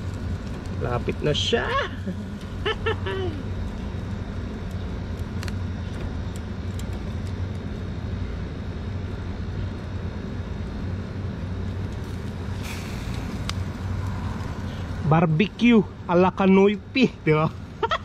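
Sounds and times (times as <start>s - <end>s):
low rumble and hum: 0.0s - 18.0s
short hiss: 12.5s - 13.5s.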